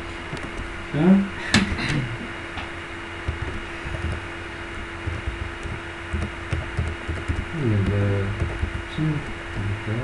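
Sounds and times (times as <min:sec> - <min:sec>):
electrical hum: 0:00.0 - 0:10.0
keyboard typing: 0:03.2 - 0:09.6.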